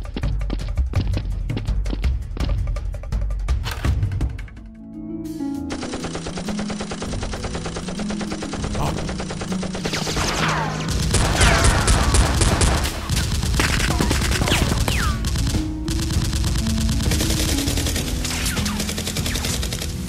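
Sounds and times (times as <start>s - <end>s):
background music: 0.0s - 20.0s
machine-gun fire: 5.7s - 20.0s.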